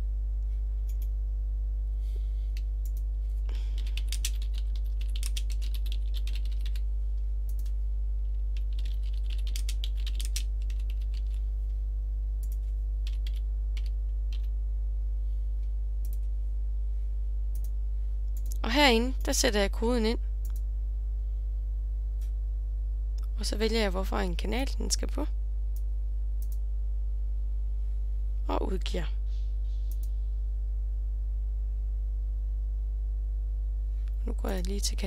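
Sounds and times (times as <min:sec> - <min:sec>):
low electrical hum: 0:00.0 - 0:35.0
keyboard typing: 0:03.7 - 0:06.9, 0:07.5 - 0:11.4, 0:12.4 - 0:14.5.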